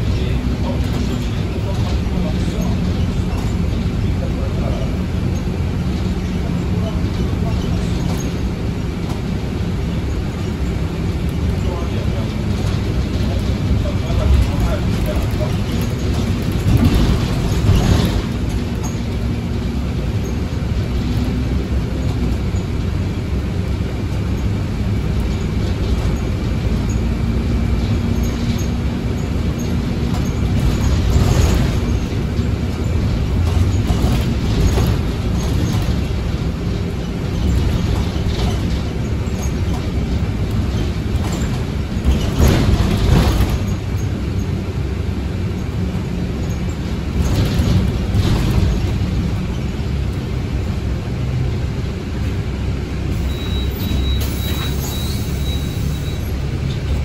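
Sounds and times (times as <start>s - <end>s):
bus engine and road rumble: 0.0s - 57.0s
rattling knocks from bus body: 5.2s - 22.7s, 24.2s - 44.6s, 45.6s - 50.8s.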